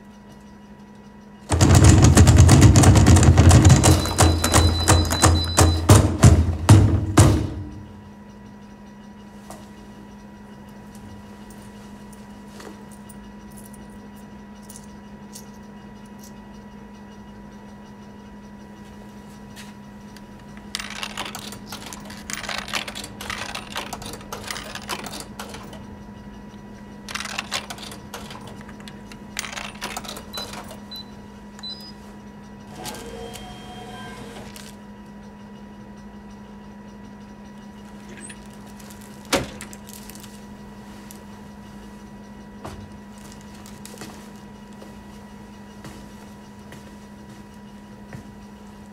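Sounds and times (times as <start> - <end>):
vending machine humming: 0.0 - 48.9
coin mechanism clicking and rattling: 20.6 - 25.8, 27.1 - 30.8.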